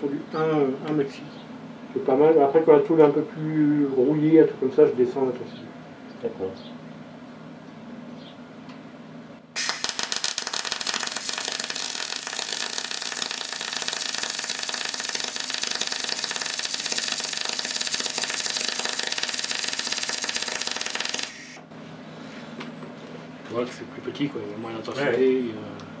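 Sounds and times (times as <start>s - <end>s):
welding arc crackling: 9.6s - 21.6s.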